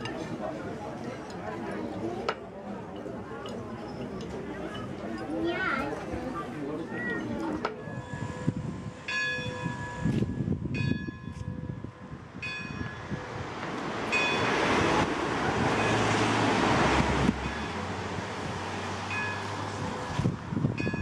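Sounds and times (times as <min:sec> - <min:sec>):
rushing noise: 0:12.1 - 0:21.0.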